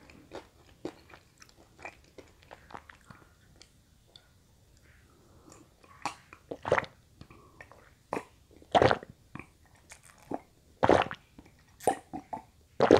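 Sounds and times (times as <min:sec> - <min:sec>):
person gulping water: 0:06.0 - 0:12.9.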